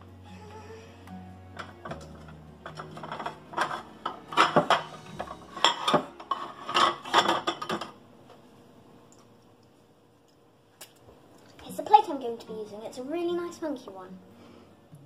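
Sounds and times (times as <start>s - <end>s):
plates clinking: 1.6s - 8.0s.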